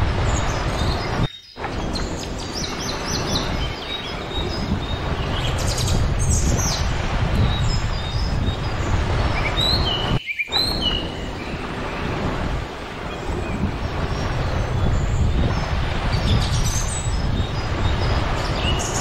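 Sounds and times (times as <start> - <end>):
small birds chirping: 0.0 - 19.0
surf rushing: 0.0 - 19.0
wind: 0.0 - 19.0.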